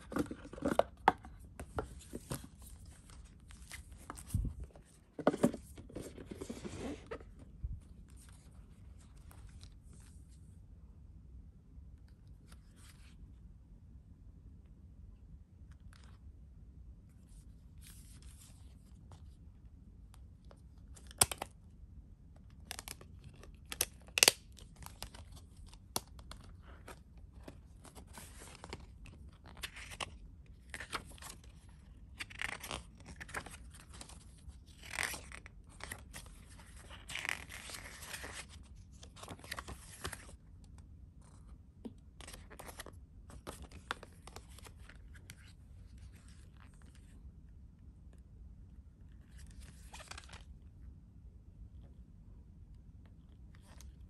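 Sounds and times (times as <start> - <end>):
cardboard sliding and rustling: 3.6 - 7.4.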